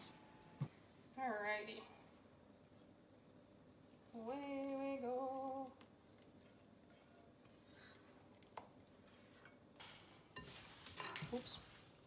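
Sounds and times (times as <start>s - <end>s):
spatula scraping saucepan: 9.0s - 12.0s.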